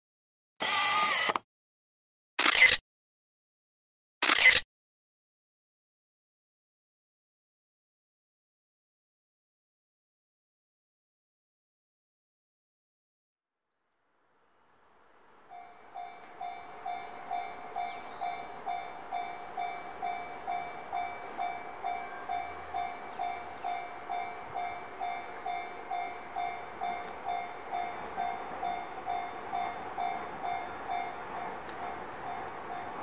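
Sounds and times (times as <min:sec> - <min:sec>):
level-crossing warning bell ringing: 0:15.5 - 0:33.0.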